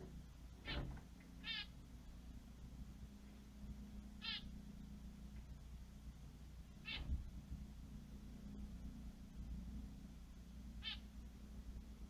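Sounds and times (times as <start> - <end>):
steady low hum: 0.0 - 12.0
high nasal animal calls: 0.6 - 1.7, 4.2 - 4.5, 6.8 - 7.1, 10.8 - 11.1.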